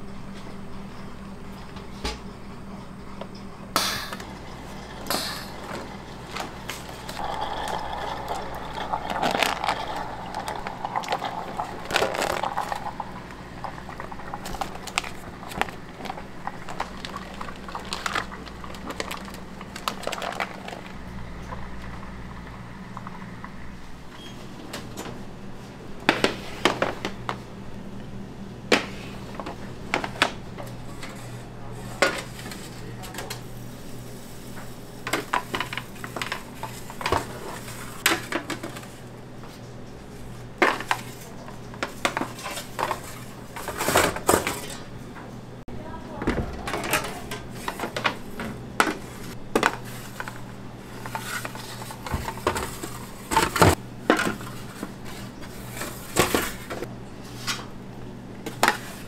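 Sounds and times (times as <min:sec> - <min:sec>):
low machine hum: 0:00.0 - 0:59.0
metal pans clattering: 0:46.2 - 0:56.9.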